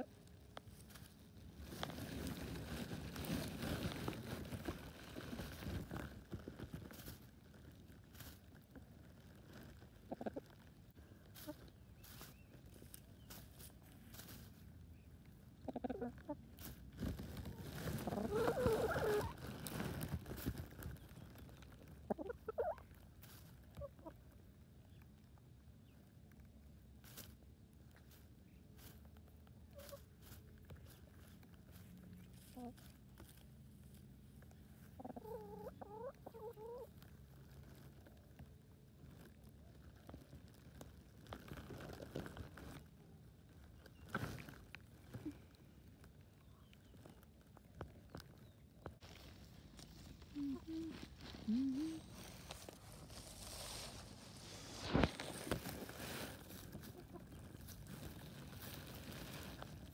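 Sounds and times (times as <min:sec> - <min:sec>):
rustling and tapping in grass: 0:00.0 - 0:59.9
chickens clucking: 0:10.0 - 0:10.7, 0:15.5 - 0:19.5, 0:21.8 - 0:23.0, 0:34.8 - 0:37.0, 0:56.5 - 0:57.7.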